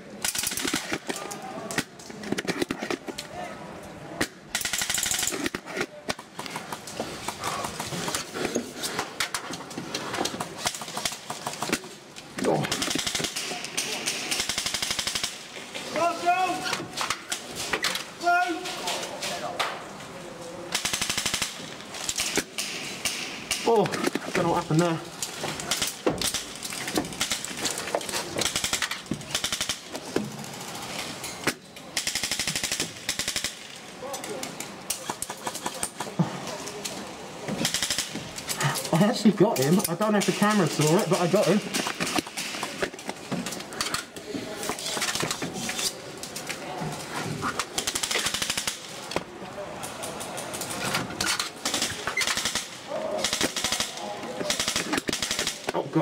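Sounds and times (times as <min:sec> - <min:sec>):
automatic airsoft gunfire: 0:04.5 - 0:05.6, 0:12.5 - 0:15.5, 0:20.7 - 0:23.7, 0:28.4 - 0:29.9, 0:32.0 - 0:33.7, 0:37.6 - 0:38.1, 0:47.8 - 0:48.9, 0:51.6 - 0:55.7.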